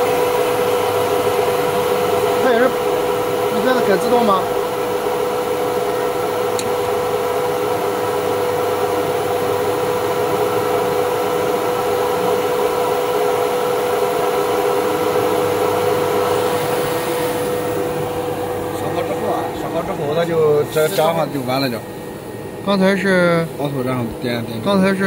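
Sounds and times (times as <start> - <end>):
machine whirring and humming: 0.0 - 25.0.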